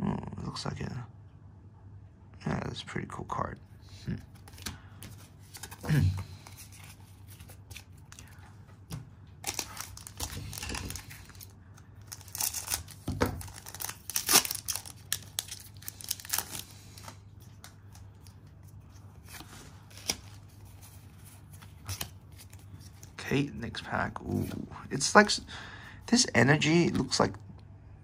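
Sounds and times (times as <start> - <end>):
foil wrapper tearing: 9.4 - 17.1.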